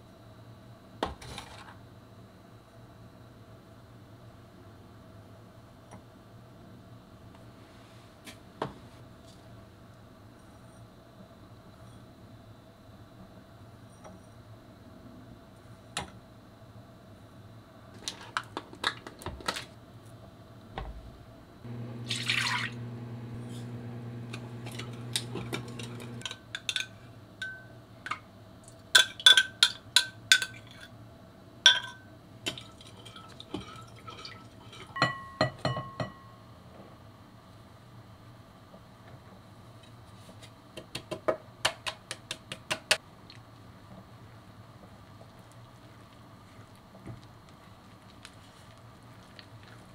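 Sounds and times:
steady low hum: 0:20.9 - 0:26.4
metal spoon clinking in glass bowl: 0:25.8 - 0:27.7, 0:31.7 - 0:32.1.

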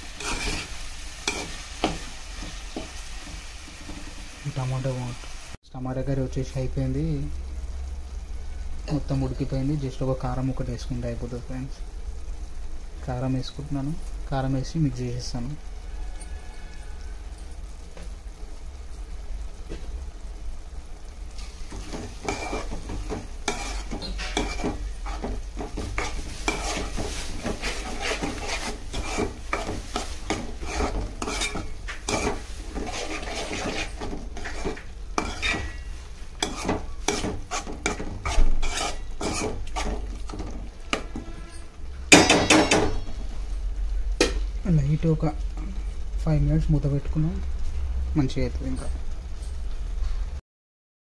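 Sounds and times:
metal spoon scraping a pot: 0:00.0 - 0:02.0, 0:21.7 - 0:41.8.

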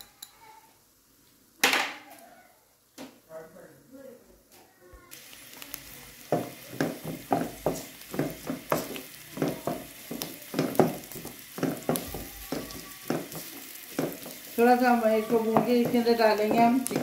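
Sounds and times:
vegetables sizzling in oil: 0:00.0 - 0:17.0
wooden spoon scraping a pan: 0:06.2 - 0:17.0.

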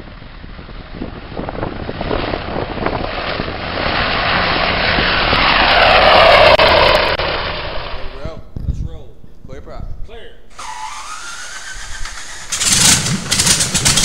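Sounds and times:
helicopter rotor and engine: 0:00.1 - 0:08.1, 0:10.6 - 0:14.0
whine sweeping down in pitch: 0:04.2 - 0:08.3.

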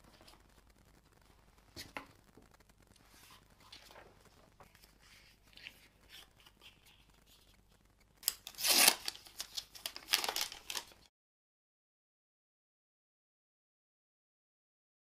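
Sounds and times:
paper and plastic rustling: 0:02.9 - 0:11.1
plastic bag crinkling: 0:03.0 - 0:11.1.

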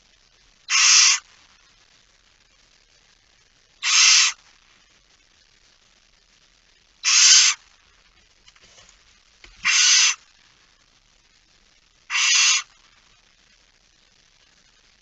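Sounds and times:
barn owl hissing calls: 0:00.7 - 0:01.3, 0:03.8 - 0:04.4, 0:07.0 - 0:07.6, 0:09.5 - 0:10.2, 0:12.1 - 0:12.8.

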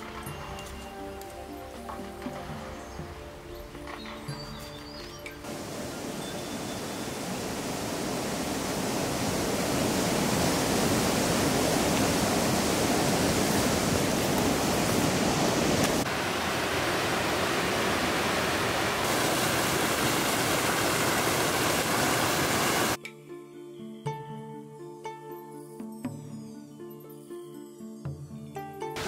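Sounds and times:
stream rushing over rocks: 0:05.3 - 0:23.0.

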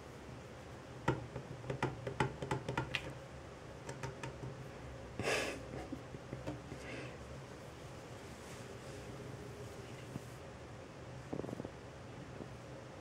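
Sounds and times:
light irregular clicks and taps: 0:03.8 - 0:04.6.

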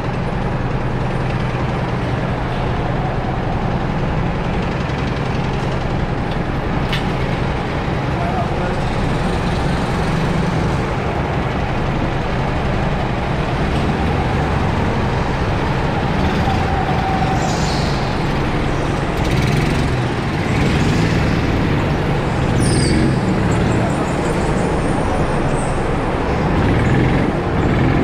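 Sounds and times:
go-kart engines droning: 0:00.0 - 0:28.0.

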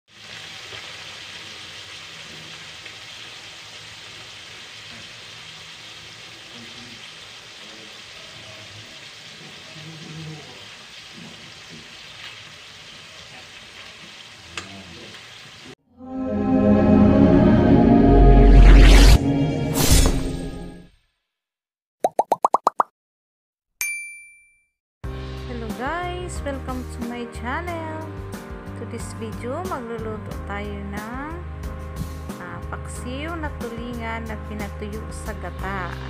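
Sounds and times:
sizzling simmer: 0:00.1 - 0:15.8.

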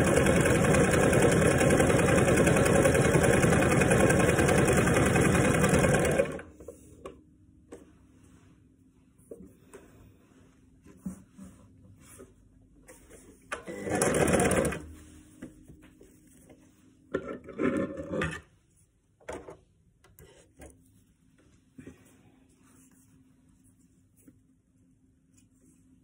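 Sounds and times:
sewing machine stitching: 0:00.0 - 0:06.5, 0:13.6 - 0:14.9.

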